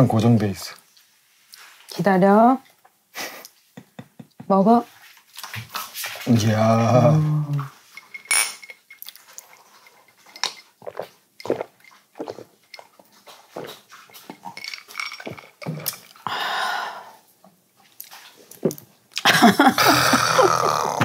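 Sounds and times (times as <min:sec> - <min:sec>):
beer glasses clinking: 0:07.8 - 0:12.9
gulping and swallowing: 0:10.8 - 0:14.6, 0:15.2 - 0:16.2, 0:19.9 - 0:21.0.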